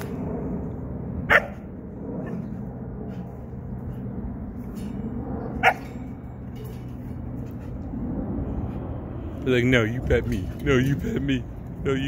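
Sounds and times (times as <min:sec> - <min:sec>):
low background hum: 0:00.0 - 0:12.0
dog barking: 0:01.3 - 0:01.6.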